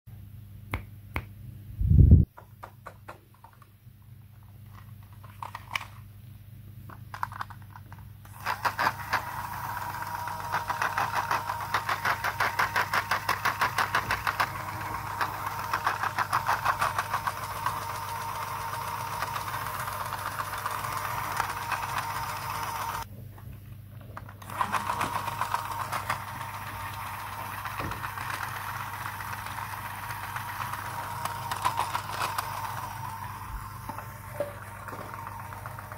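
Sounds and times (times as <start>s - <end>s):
toy sewing machine motor whine: 8.3s - 23.1s, 24.4s - 35.9s.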